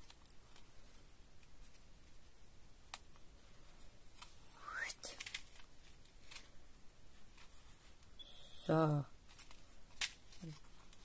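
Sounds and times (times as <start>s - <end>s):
paper rustling: 5.1s - 8.1s, 9.2s - 11.0s.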